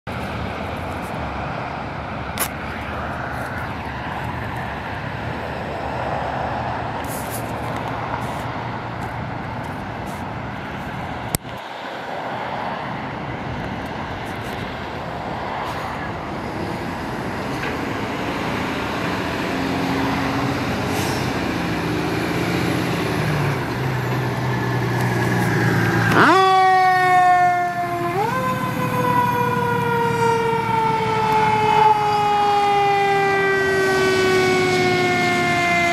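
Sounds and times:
diesel engine running: 13.9 - 32.0
fire engine siren: 14.6 - 35.9.

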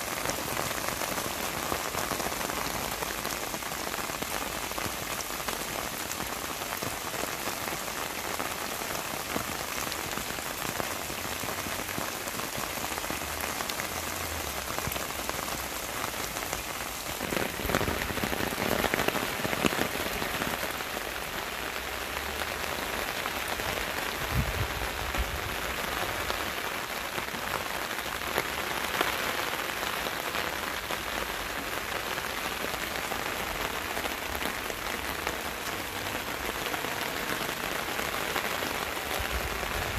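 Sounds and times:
rain on leaves and grass: 0.0 - 39.9.

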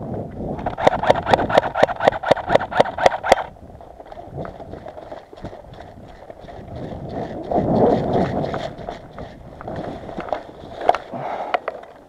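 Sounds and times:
rustling vegetation: 0.0 - 12.0
sharp click: 0.6 - 3.5
gear knocking and rattling: 0.6 - 12.0
footsteps on gravel: 3.8 - 11.3.

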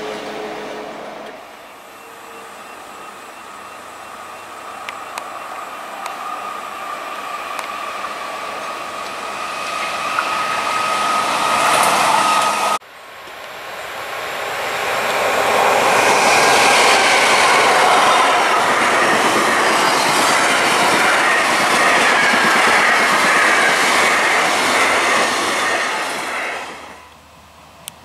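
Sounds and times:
diesel railcar engine: 0.0 - 28.0
rail vehicle running noise: 0.0 - 28.0
wheels clicking on rails: 4.8 - 13.6.

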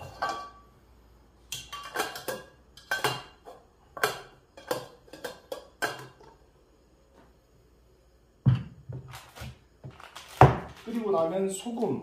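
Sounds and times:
metal pot lid clanking: 0.0 - 0.7, 1.5 - 6.2.

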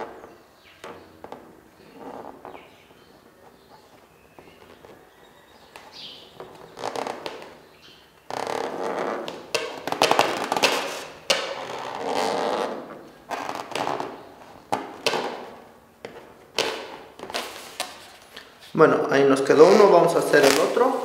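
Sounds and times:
balloons squeaking and rubbing: 1.8 - 5.2, 5.8 - 18.5, 19.5 - 21.0
marker scratching on balloon: 6.4 - 7.6, 8.3 - 14.2, 17.2 - 18.2.

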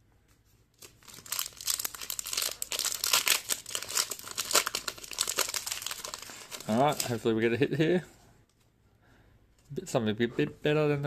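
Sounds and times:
foil wrapper crinkling and tearing: 0.8 - 7.2.

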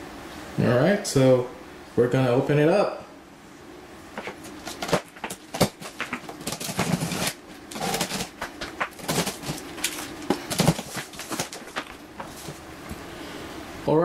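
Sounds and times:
cardboard box being opened: 4.2 - 12.6.

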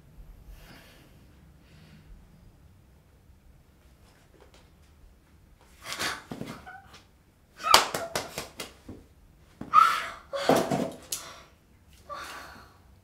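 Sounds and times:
hands clapping: 7.7 - 8.8
woman squealing and gasping: 9.7 - 10.7.

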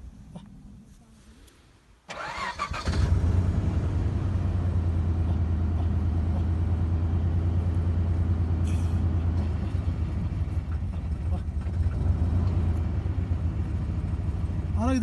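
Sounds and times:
engine starting and idling: 2.1 - 5.0.

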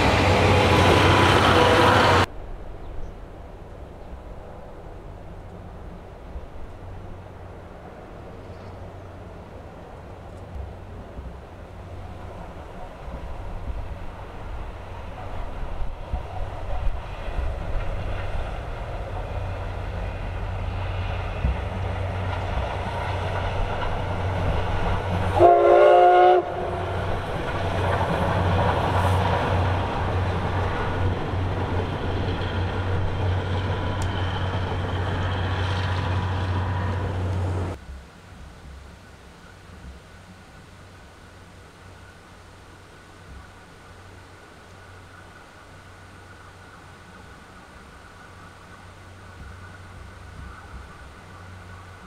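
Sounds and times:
steam locomotive running past: 0.0 - 2.8, 3.8 - 37.8, 42.9 - 52.0
locomotive whistle blast: 25.3 - 26.9
faint hiss: 35.2 - 52.0.

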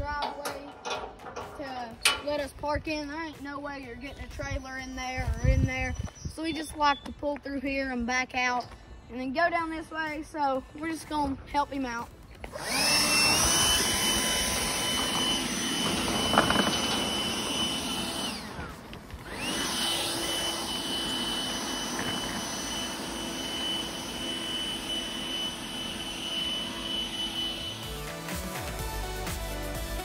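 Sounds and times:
leaf blower motor whine: 12.3 - 29.1.

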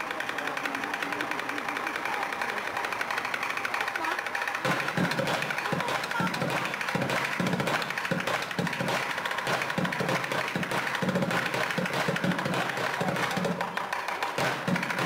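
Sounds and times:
bucket drumming: 4.1 - 15.0.

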